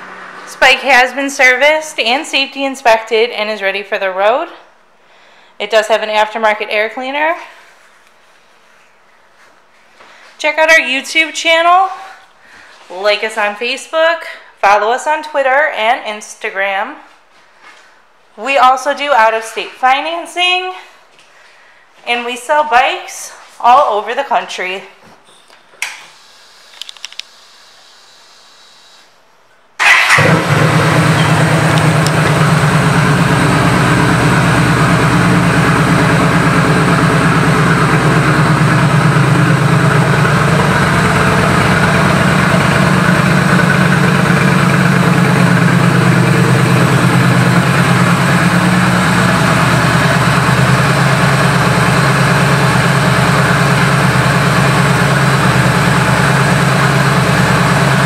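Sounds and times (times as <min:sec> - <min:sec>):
motorcycle engine starting and idling: 0:00.0 - 0:01.9, 0:29.8 - 0:58.0.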